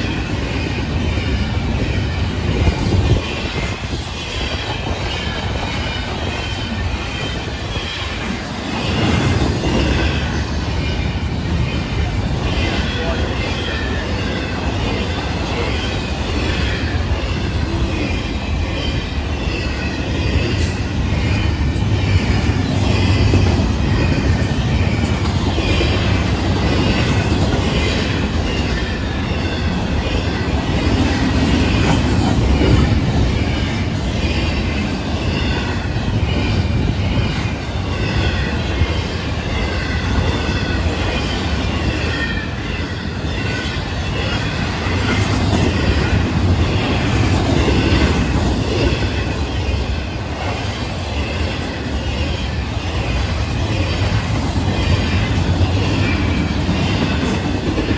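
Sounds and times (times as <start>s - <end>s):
freight train rumbling past: 0.0s - 57.9s.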